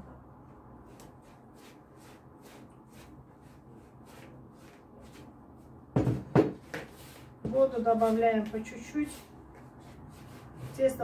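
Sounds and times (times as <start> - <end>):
dough kneading rustle in plastic bowl: 6.8 - 11.0.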